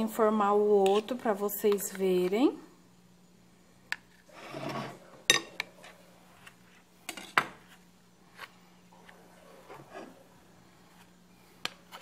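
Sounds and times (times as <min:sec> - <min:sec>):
spoon scraping glass plate: 0:04.2 - 0:06.0.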